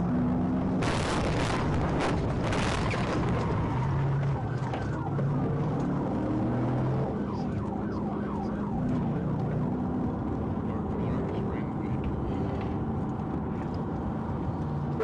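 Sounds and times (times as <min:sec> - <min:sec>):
police siren wailing: 0:02.4 - 0:10.9.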